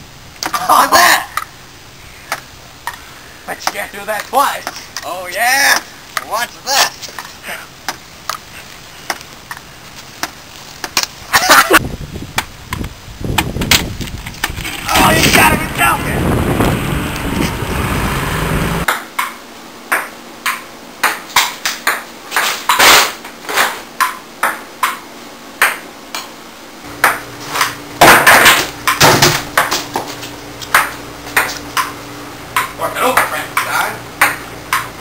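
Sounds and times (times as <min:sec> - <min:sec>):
steady rushing noise: 0:11.0 - 0:18.9
table tennis ball hitting paddles: 0:18.9 - 0:22.9, 0:23.6 - 0:25.0, 0:25.6 - 0:26.3, 0:27.0 - 0:35.0.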